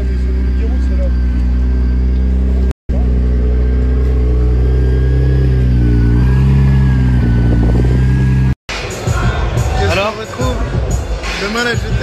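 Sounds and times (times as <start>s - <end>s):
car engine idling: 0.0s - 8.5s.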